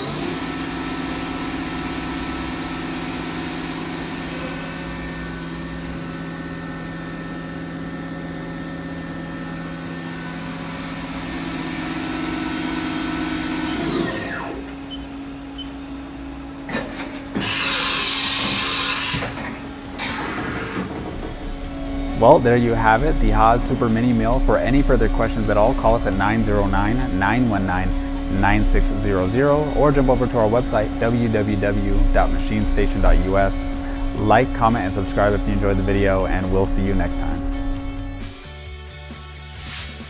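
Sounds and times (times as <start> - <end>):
milling machine spindle whining: 0.0 - 38.4
low steady hum: 21.2 - 38.4.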